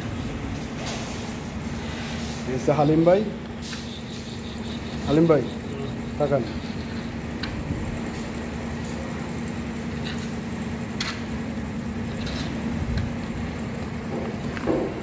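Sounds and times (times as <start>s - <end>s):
machine hum: 0.0s - 15.0s.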